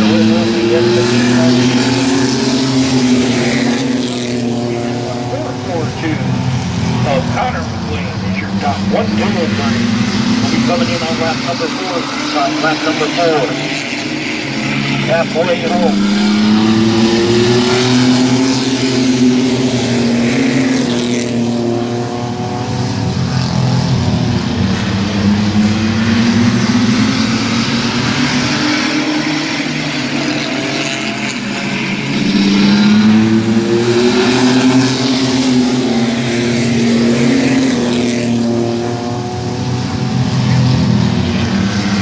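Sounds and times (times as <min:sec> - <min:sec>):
race truck engines passing: 0:00.0 - 0:42.0.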